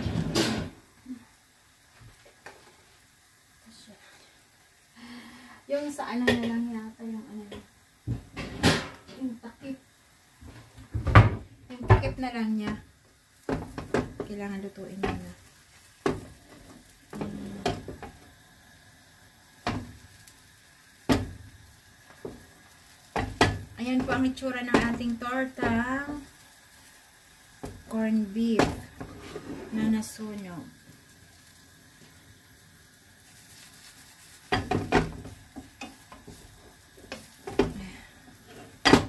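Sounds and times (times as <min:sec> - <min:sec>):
kitchen cookware clunks: 0:00.0 - 0:00.8, 0:08.3 - 0:09.2, 0:38.8 - 0:39.0.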